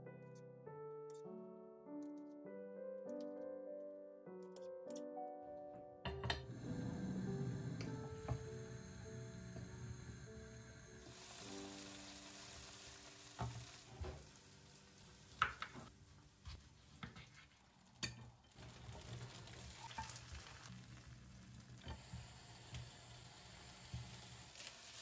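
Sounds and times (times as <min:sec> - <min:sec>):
vegetables sizzling in a pan: 0:06.5 - 0:25.0
wooden spoon stirring: 0:12.8 - 0:21.7.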